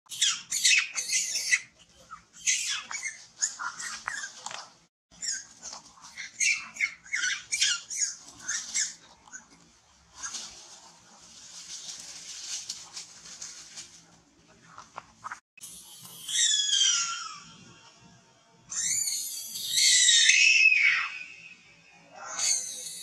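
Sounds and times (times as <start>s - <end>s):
monkey screaming: 0.1s - 4.3s, 6.2s - 9.0s, 16.2s - 17.6s, 18.7s - 21.5s, 22.1s - 23.0s.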